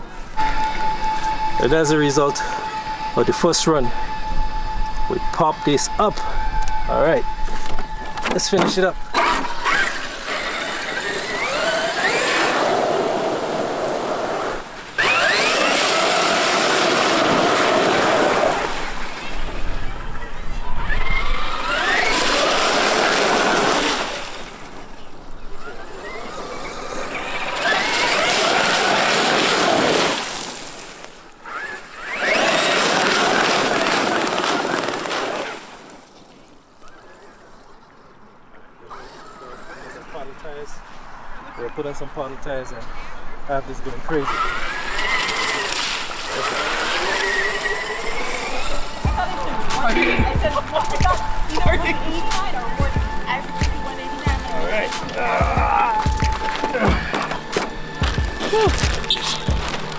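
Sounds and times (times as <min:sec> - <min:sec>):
electric motor whining: 0:00.0 - 0:30.6, 0:31.4 - 0:35.6, 0:44.1 - 0:59.9
tyres spraying water through mud: 0:09.2 - 0:19.8, 0:21.0 - 0:24.8, 0:25.8 - 0:36.1, 0:44.1 - 0:52.4
water spray rushing: 0:27.3 - 0:35.9, 0:44.6 - 0:50.2.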